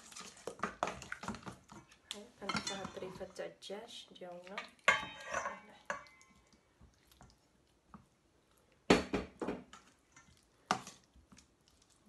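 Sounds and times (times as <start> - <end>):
wet squishing of marinated meat: 0.0 - 3.4, 4.1 - 9.0, 9.6 - 12.0.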